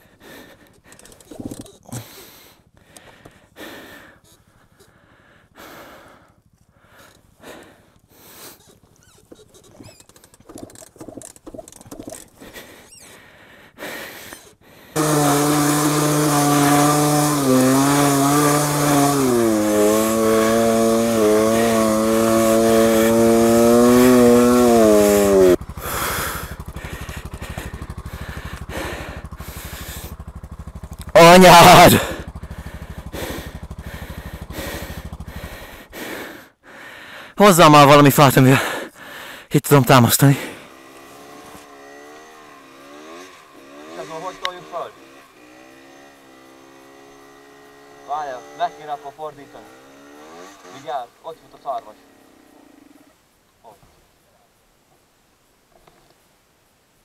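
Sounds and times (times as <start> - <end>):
motorcycle engine revving hard: 14.9 - 36.4, 40.0 - 53.2.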